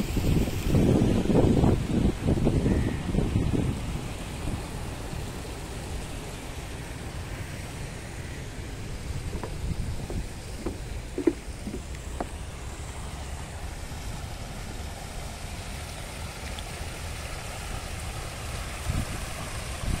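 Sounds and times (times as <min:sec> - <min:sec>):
fountain water falling into pond: 0:00.0 - 0:20.0
wind rumble on microphone: 0:00.0 - 0:20.0
footsteps on wooden boardwalk: 0:09.0 - 0:12.8.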